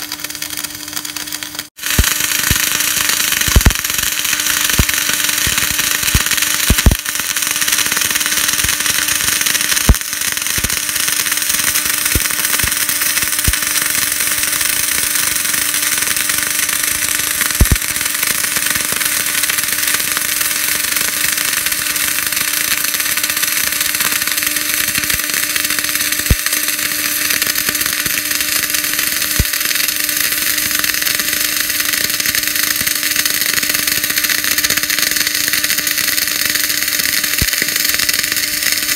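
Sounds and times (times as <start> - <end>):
spatter pops: 0.0 - 38.9
welding arc hissing: 0.0 - 38.9
welding arc hum: 0.0 - 38.9.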